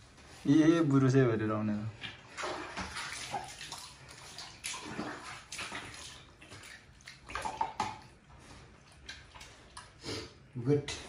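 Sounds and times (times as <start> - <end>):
water splashing onto tiled floor: 2.3 - 8.2.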